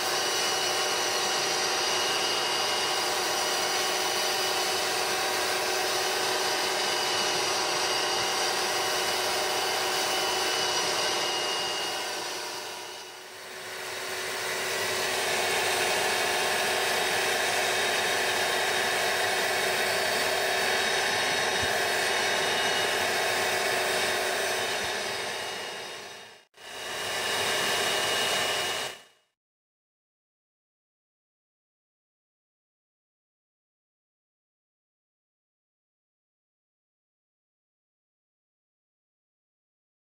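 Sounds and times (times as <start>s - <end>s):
carpet cleaner vacuum motor: 0.0s - 29.2s.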